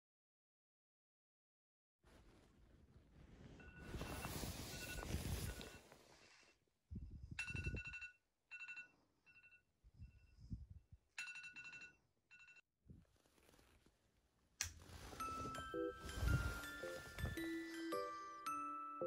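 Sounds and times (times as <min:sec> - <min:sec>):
low rustling: 0:14.8 - 0:17.6.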